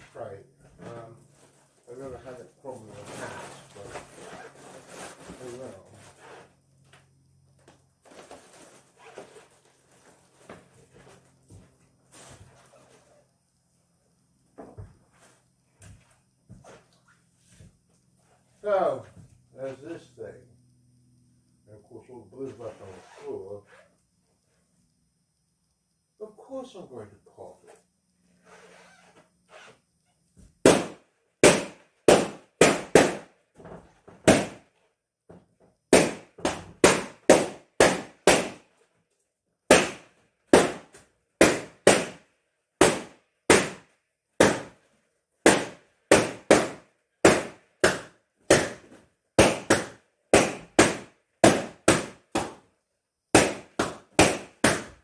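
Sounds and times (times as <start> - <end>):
balloons popping: 30.6 - 33.3, 34.2 - 34.6, 35.9 - 38.6, 39.7 - 42.2, 42.8 - 43.8, 44.4 - 44.8, 45.4 - 52.6, 53.3 - 55.0.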